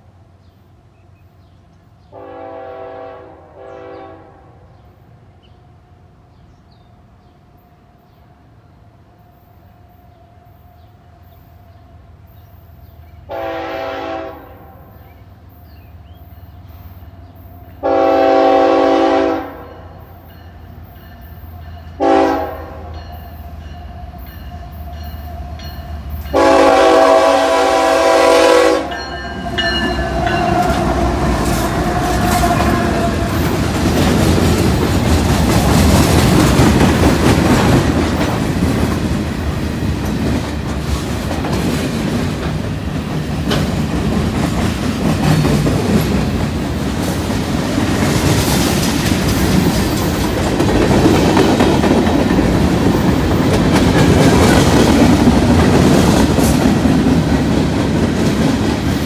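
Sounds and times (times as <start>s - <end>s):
freight train rumbling past: 0.0s - 59.0s
locomotive air horn blasts: 2.1s - 4.7s, 13.3s - 15.0s, 17.8s - 20.0s, 22.0s - 22.9s, 26.3s - 29.1s, 30.0s - 33.6s
wheels clacking over rail joints: 28.9s - 59.0s.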